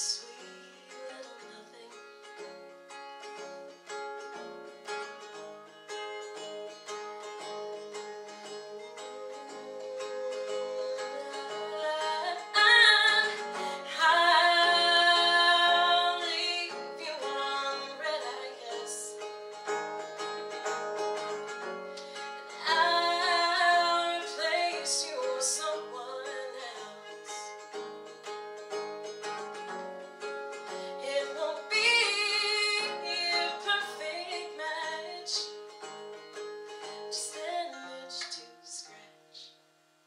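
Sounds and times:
woman singing: 0.0 - 2.0, 9.0 - 19.3, 22.1 - 27.6, 30.9 - 35.6, 36.9 - 39.5
acoustic guitar picked: 0.0 - 40.0.

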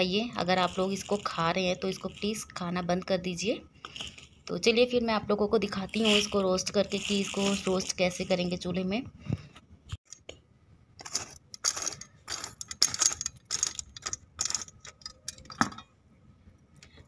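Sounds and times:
metal tongs scraping ash: 0.4 - 2.7, 5.7 - 8.6, 11.0 - 15.6.

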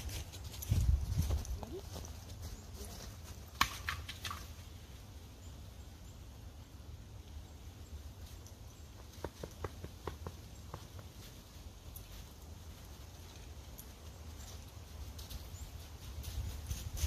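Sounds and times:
footsteps crunching in snow: 0.0 - 3.6.

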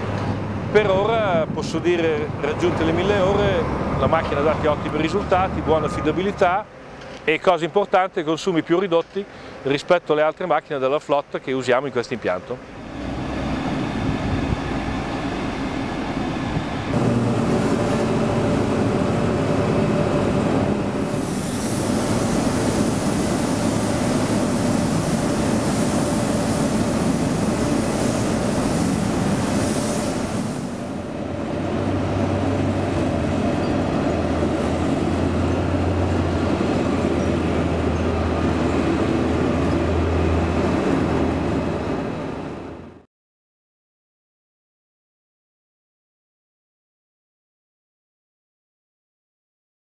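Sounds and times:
machinery noise: 2.3 - 7.4, 12.5 - 42.7
diesel engine running: 12.6 - 43.0
hissing rush of load tipping: 12.8 - 39.8.

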